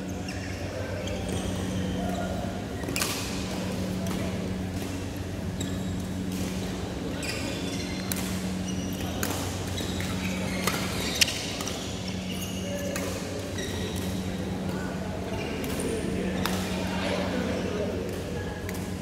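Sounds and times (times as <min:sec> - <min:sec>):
shoes squeaking on court floor: 0:00.0 - 0:03.0, 0:05.4 - 0:16.6
steady low hum: 0:00.0 - 0:19.0
rackets striking shuttlecock: 0:08.0 - 0:11.8, 0:15.6 - 0:16.7.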